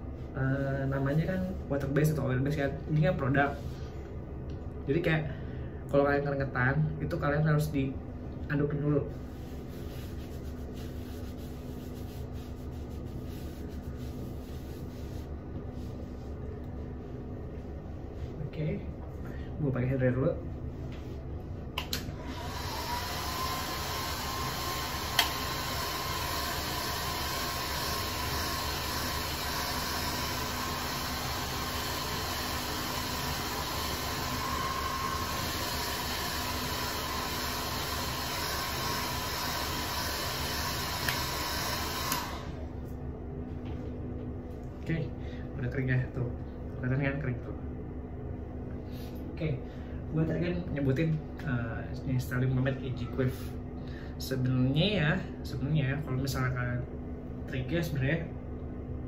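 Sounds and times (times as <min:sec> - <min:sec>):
steady low hum: 0:00.0 - 0:22.6, 0:42.3 - 0:59.0
towel rubbing hair: 0:09.0 - 0:18.5
hair dryer blowing: 0:21.8 - 0:42.8.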